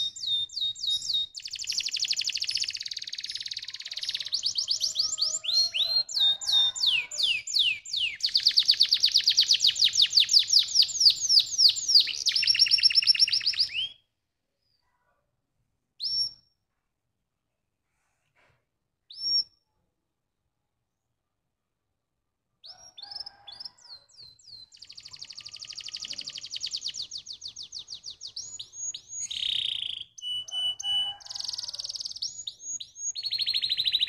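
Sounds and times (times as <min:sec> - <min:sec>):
canary singing: 0:00.0 - 0:14.0, 0:22.6 - 0:34.0.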